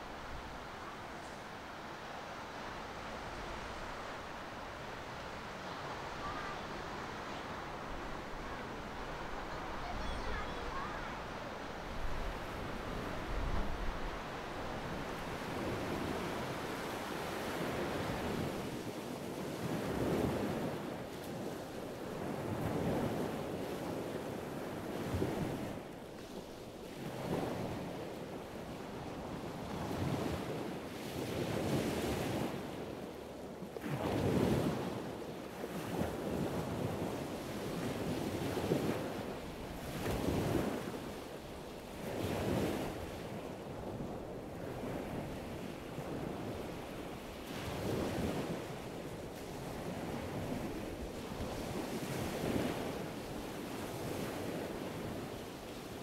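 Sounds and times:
choppy sea rushing: 0.0s - 56.0s
wind buffeting microphone: 33.8s - 56.0s.

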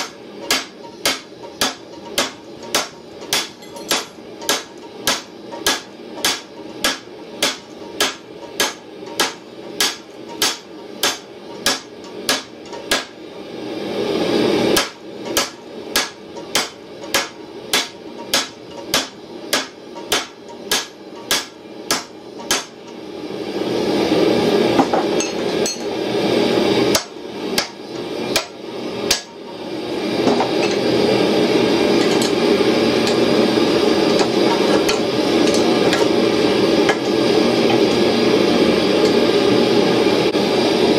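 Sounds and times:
hammer striking metal on anvil: 0.0s - 13.2s, 14.7s - 22.8s, 26.9s - 29.4s.

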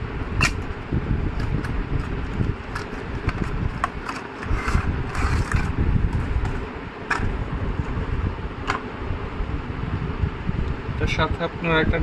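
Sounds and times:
steady low rumble: 0.0s - 12.0s
cardboard box rustling and scraping: 2.0s - 7.4s.

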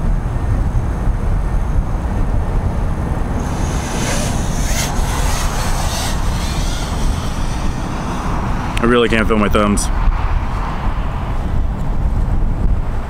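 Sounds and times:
wind buffeting microphone: 0.0s - 13.0s
higher hiss: 3.4s - 9.1s.

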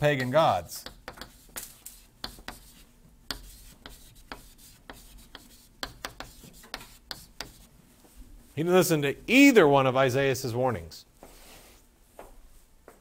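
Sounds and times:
writing tool tapping and scraping: 0.0s - 7.7s.

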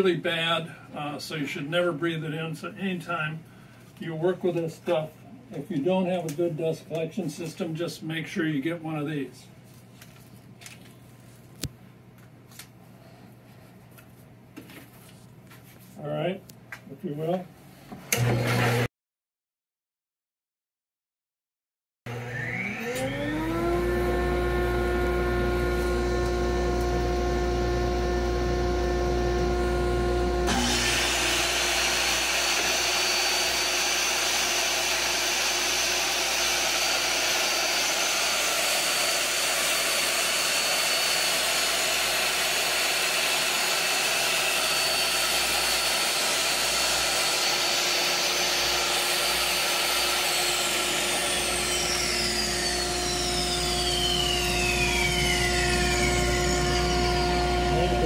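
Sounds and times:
table saw motor whining: 18.2s - 18.9s, 22.1s - 58.0s
saw blade ripping board: 30.5s - 52.0s.

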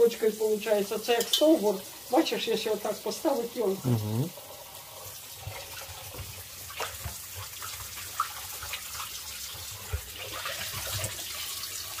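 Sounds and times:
tap water splashing into bowl: 5.5s - 11.4s.

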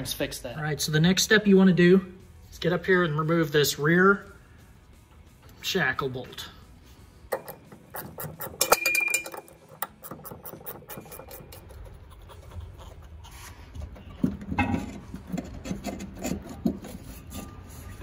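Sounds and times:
metal clunks and scraping: 7.3s - 12.0s, 13.4s - 18.0s.

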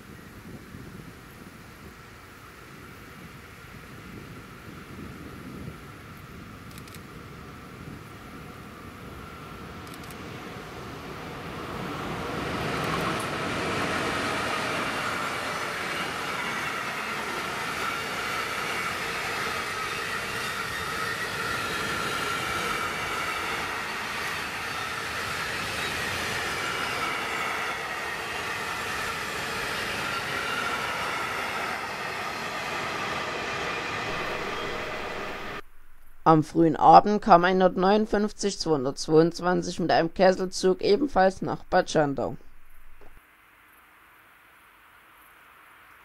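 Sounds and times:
high whine from wheels: 0.0s - 36.3s
freight train passing: 0.0s - 43.2s.

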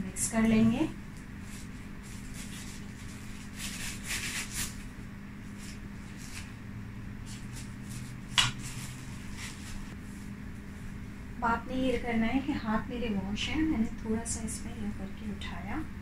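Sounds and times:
low steady hum: 0.0s - 16.0s
plastic glove rustling: 0.6s - 6.6s, 7.2s - 10.3s.

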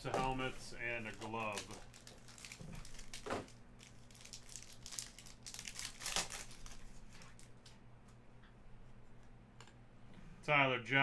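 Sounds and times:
foil pack crinkling: 0.2s - 7.7s.

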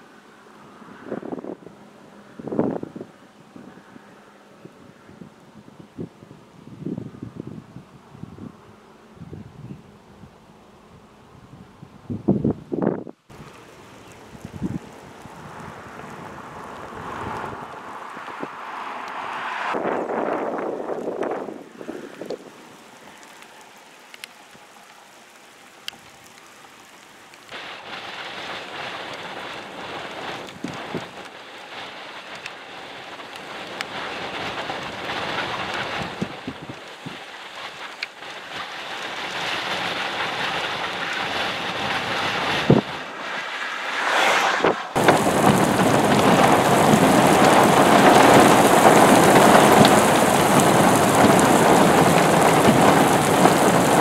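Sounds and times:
heavy rain: 13.1s - 54.0s.

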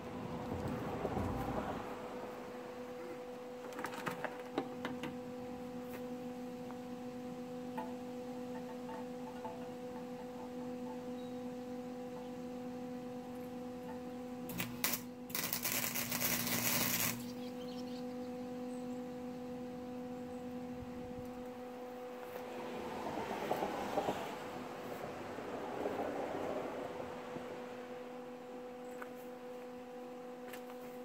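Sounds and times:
steady electrical hum: 0.0s - 31.0s
electric welding arc crackling: 14.4s - 17.5s.

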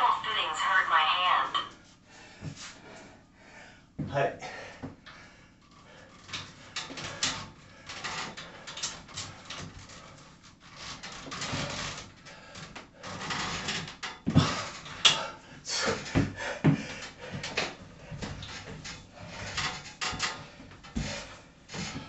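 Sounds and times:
heavy breathing: 2.0s - 9.0s, 14.3s - 18.4s
metal frame knocks and clanks: 16.0s - 22.0s.

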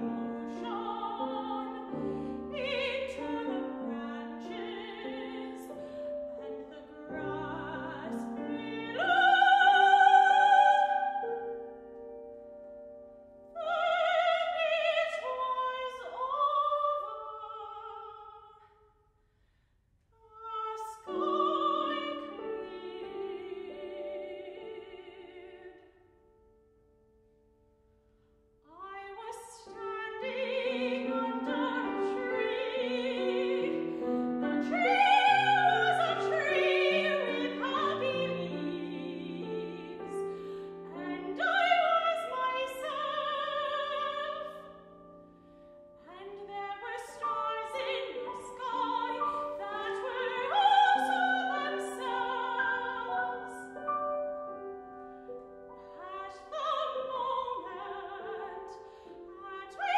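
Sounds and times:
soprano singing with vibrato: 0.0s - 11.8s, 13.5s - 18.7s, 20.2s - 26.0s, 28.7s - 45.2s, 46.0s - 59.9s
grand piano: 0.0s - 18.5s, 20.2s - 59.9s.

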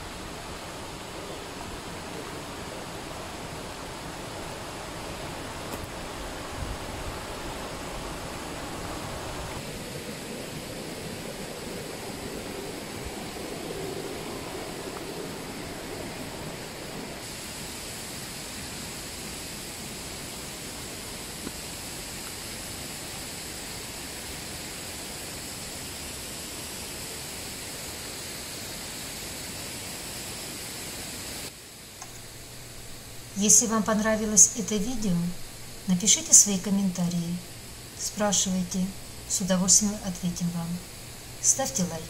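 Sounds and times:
stream water rushing: 0.0s - 28.2s.

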